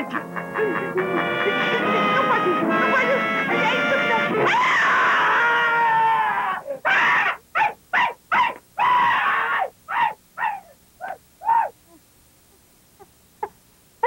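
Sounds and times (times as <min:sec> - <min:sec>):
person screaming: 0:04.4 - 0:07.4, 0:08.4 - 0:11.8
short high yelps: 0:04.4 - 0:11.8.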